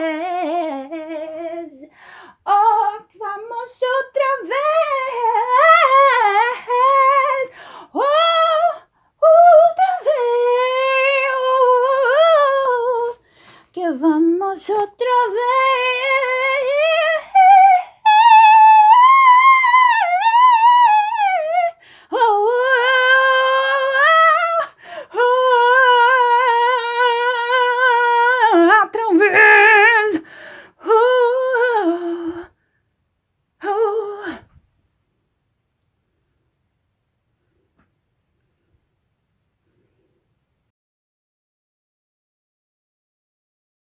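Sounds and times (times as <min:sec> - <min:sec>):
woman singing a cappella: 0:00.0 - 0:32.6, 0:33.6 - 0:34.6.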